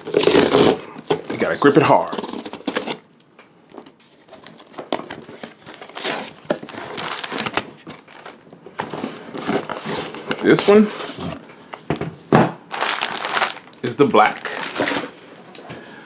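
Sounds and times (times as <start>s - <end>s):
cardboard box ripping open: 0.0s - 3.0s, 5.7s - 7.6s, 12.8s - 13.6s
plastic packaging crinkling: 0.0s - 3.0s, 3.7s - 10.9s, 12.7s - 15.2s.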